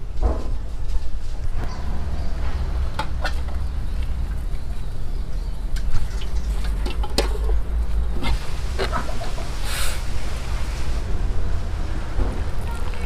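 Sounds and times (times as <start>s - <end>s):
steady low rumble: 0.0s - 13.0s
chickens clucking: 5.6s - 10.2s.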